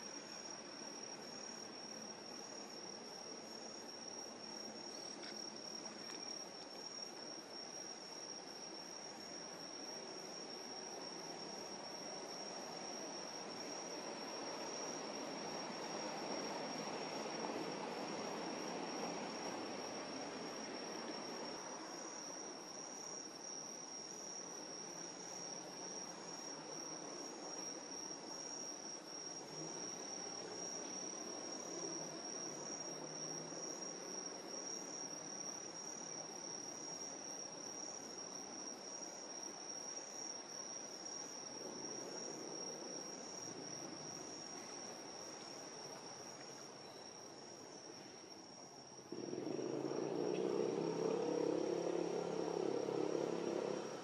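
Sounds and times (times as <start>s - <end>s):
crickets chirring: 0.0s - 54.0s
pulsing insect call: 49.0s - 54.0s.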